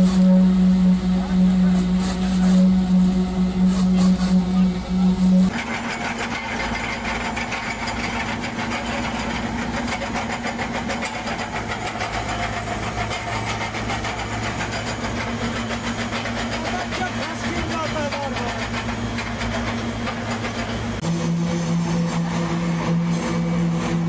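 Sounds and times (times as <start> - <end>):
engine hum: 0.0 - 24.0
fast machine rattle: 5.5 - 21.0.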